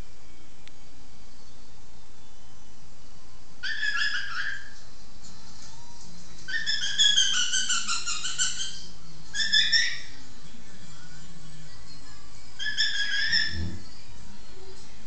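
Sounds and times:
parrot whistling: 3.6s - 4.8s, 6.5s - 10.2s, 12.6s - 13.8s.

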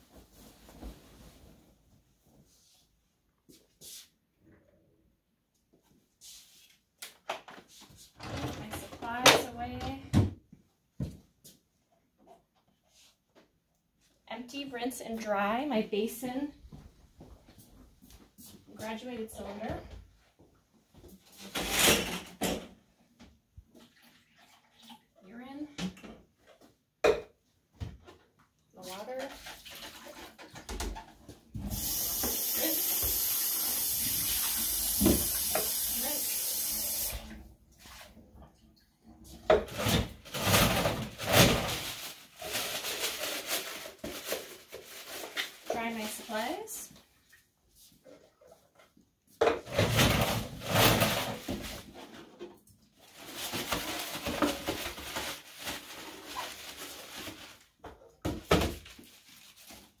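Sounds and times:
water running into sink: 31.6s - 37.4s.

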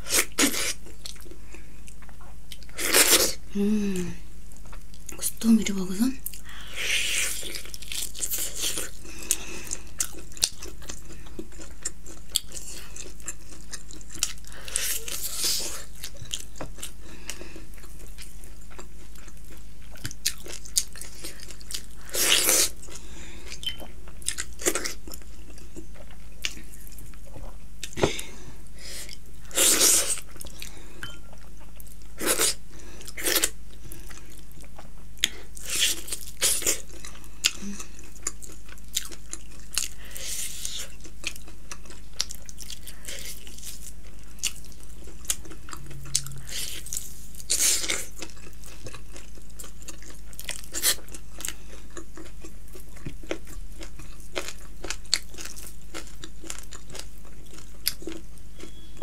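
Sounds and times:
chewing and biting meat: 34.1s - 58.8s.

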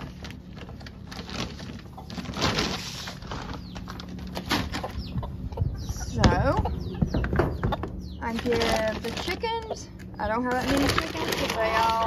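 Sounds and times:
chickens clucking softly: 3.6s - 8.5s.

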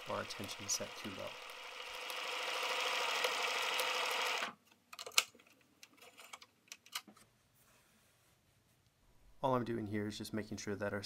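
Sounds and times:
sewing machine stitching: 0.0s - 4.6s
fabric rustling: 7.2s - 8.8s.

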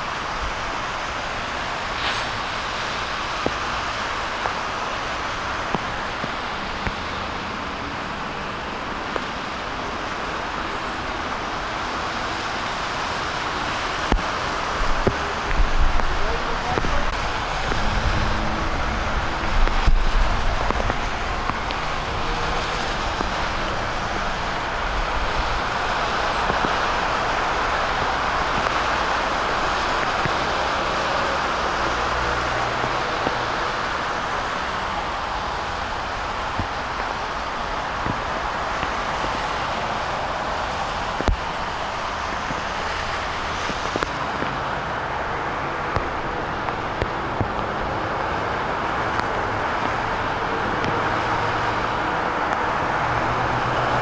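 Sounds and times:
heavy rain hissing: 0.0s - 54.0s
tyres on wet pavement: 0.0s - 54.0s
vehicles driving through floodwater: 0.0s - 54.0s.

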